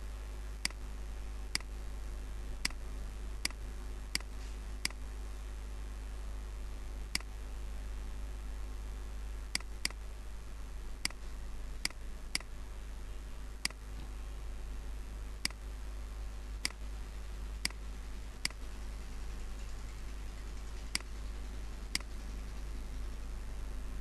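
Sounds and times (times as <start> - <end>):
steady low hum: 0.0 - 24.0
computer mouse clicking: 9.6 - 10.0, 20.9 - 21.1, 21.9 - 22.1.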